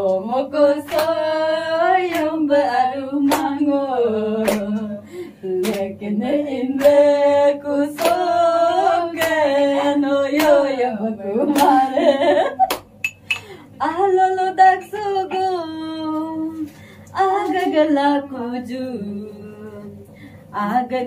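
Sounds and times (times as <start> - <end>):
women singing unaccompanied: 0.0 - 12.6, 13.8 - 21.0
hands clapping in time: 3.3 - 3.5, 4.4 - 4.9, 5.6 - 5.9, 11.5 - 11.8, 12.6 - 13.3.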